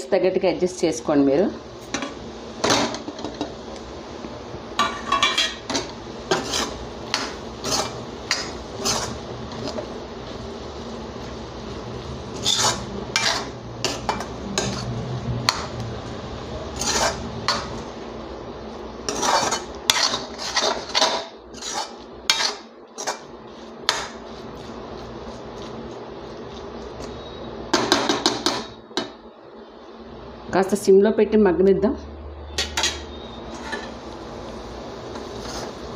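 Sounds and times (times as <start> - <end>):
metal spatula scraping a pan: 4.8 - 10.0, 12.3 - 15.7, 16.7 - 17.8, 19.0 - 24.5, 32.6 - 34.0, 35.1 - 35.9.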